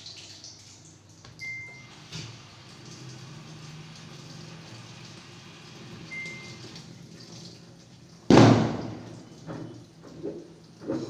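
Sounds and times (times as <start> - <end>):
washing machine hum: 0.0 - 11.0
electronic beep: 6.1 - 6.6.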